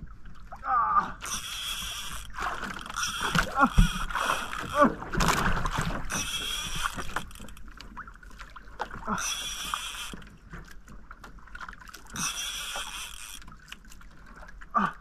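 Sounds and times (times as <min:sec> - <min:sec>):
fishing reel cranking: 0:01.2 - 0:04.9, 0:06.1 - 0:07.6, 0:09.1 - 0:10.2, 0:12.1 - 0:13.5
small knocks: 0:02.1 - 0:07.7.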